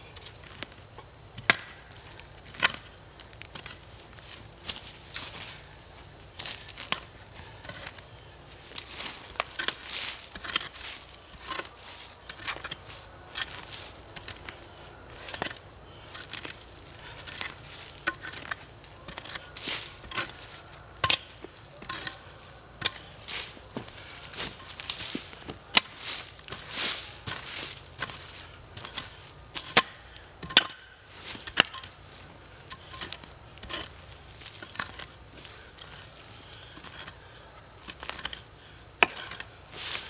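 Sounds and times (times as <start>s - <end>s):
dry leaves crunching underfoot: 0.0s - 40.0s
axe chopping into roots: 1.4s - 2.9s, 22.8s - 31.9s, 39.0s - 40.0s.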